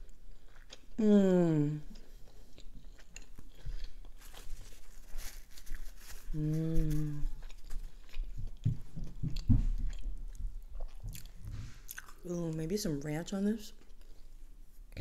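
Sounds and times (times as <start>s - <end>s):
close chewing of food: 0.0s - 15.0s
person humming mmm: 1.0s - 2.0s, 6.3s - 7.5s.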